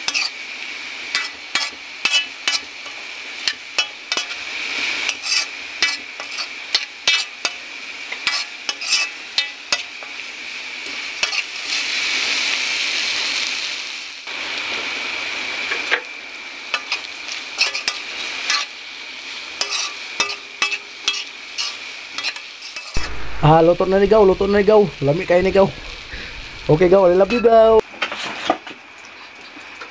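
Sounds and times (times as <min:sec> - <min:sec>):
spatula scraping pan: 0:00.0 - 0:00.4, 0:01.1 - 0:10.2, 0:11.2 - 0:11.6, 0:16.7 - 0:18.7, 0:19.6 - 0:23.0, 0:27.3 - 0:28.6
food sizzling in pan: 0:00.0 - 0:29.9.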